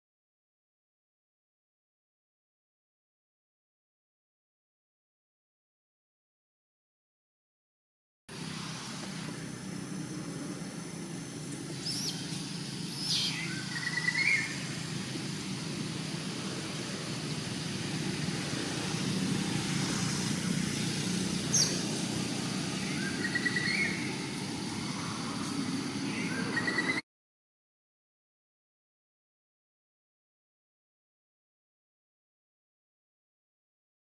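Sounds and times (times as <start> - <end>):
distant traffic rumble: 8.3 - 27.0
bird calling: 11.6 - 14.8, 21.4 - 21.9, 22.8 - 24.3, 26.1 - 27.0.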